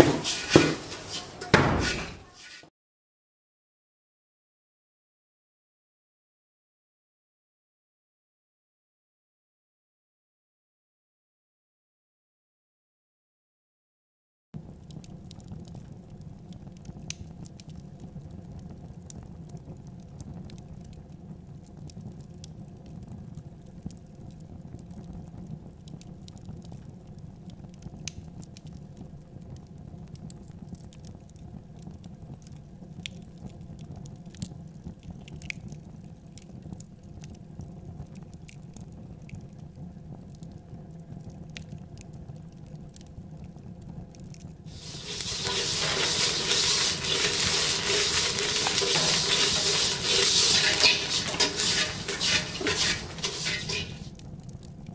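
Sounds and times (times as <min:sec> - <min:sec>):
rice crackling in a metal pot: 0:00.0 - 0:02.7, 0:14.6 - 0:40.4, 0:44.0 - 0:54.9.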